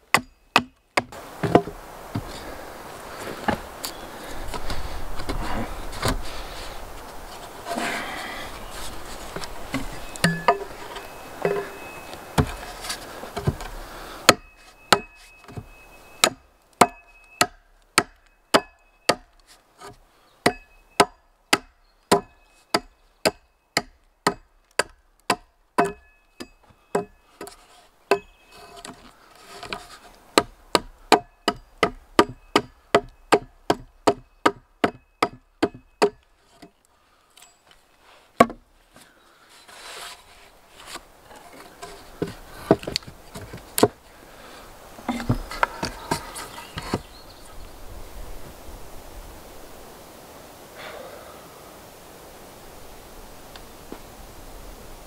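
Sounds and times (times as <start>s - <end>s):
knocking blows on wood: 45.0s - 47.1s.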